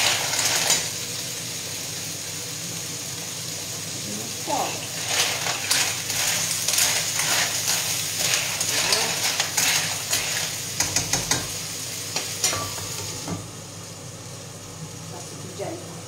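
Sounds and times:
mushrooms sizzling in a frying pan: 0.0 - 16.0
utensil scraping a pan: 4.7 - 11.5.

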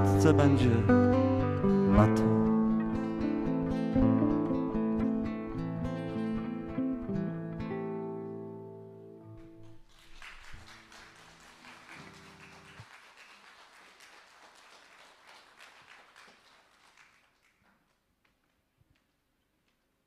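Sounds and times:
acoustic guitar chord ringing: 0.0 - 9.4
audience applause: 9.4 - 18.0.

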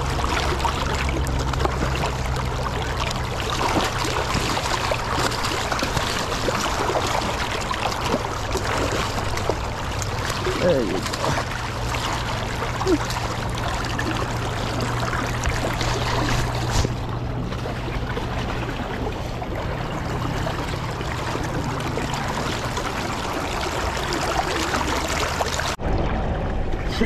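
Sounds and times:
river water splashing around net: 0.0 - 26.5.

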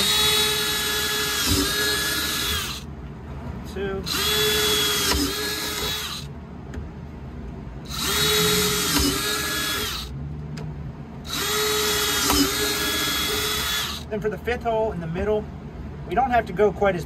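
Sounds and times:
cordless drill whining: 0.0 - 2.9, 4.1 - 6.3, 7.9 - 10.1, 11.3 - 14.1.

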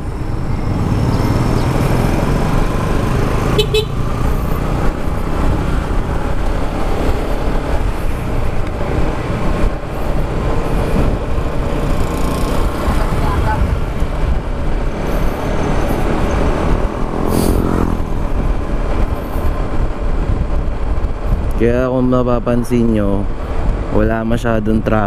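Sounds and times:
scooter road noise: 0.0 - 21.9, 22.5 - 24.0
wind rushing over microphone: 0.0 - 25.0
horn beep: 3.5 - 4.0.

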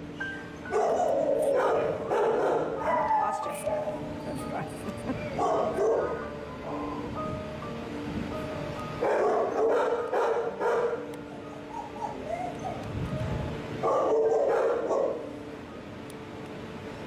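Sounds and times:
dogs barking: 0.6 - 4.6, 5.2 - 7.0, 9.0 - 12.9, 13.8 - 15.3.

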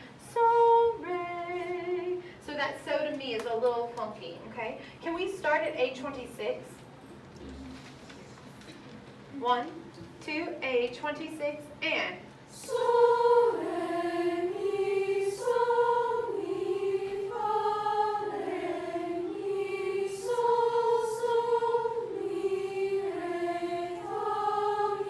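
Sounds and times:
young choir singing in unison: 12.5 - 25.0.

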